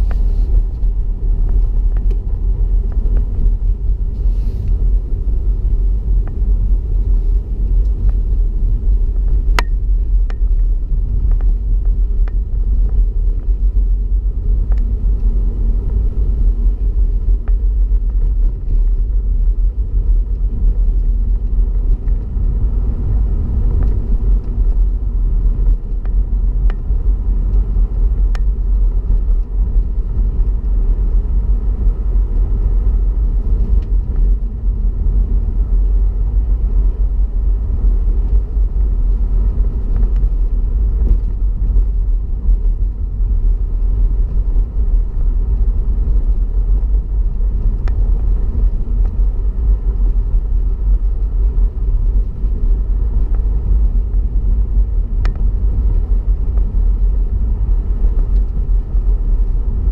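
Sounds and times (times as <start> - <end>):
car driving on snow from inside: 0.0 - 59.9
faint ticks: 14.7 - 14.9.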